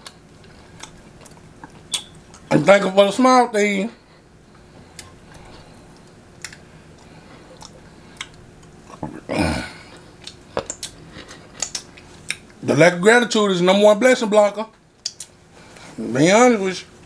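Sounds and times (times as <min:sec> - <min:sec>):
chewing and licking mouth sounds: 0:00.0 - 0:02.5, 0:04.8 - 0:09.0, 0:09.9 - 0:12.6.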